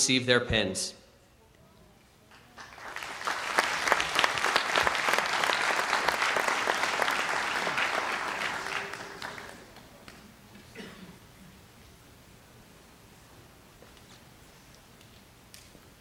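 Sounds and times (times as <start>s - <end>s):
audience applauding: 2.3s - 10.3s.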